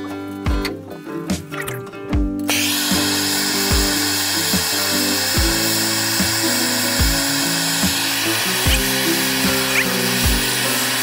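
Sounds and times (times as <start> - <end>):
background music with steady beat: 0.0 - 11.0
propane torch hissing: 2.5 - 11.0.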